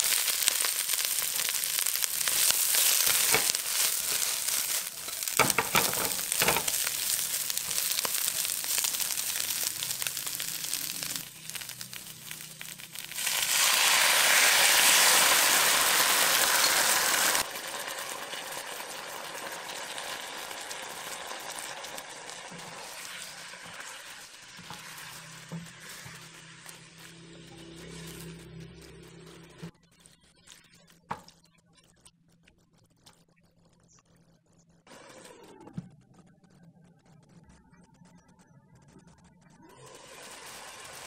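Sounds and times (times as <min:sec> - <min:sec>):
vegetables sizzling in a wok: 0:00.0 - 0:29.7, 0:39.6 - 0:41.0.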